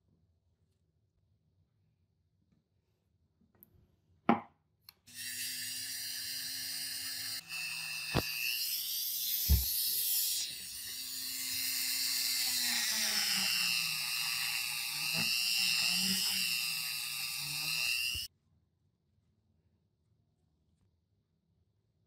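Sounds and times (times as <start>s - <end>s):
rotary tool grinding metal: 5.1s - 18.3s.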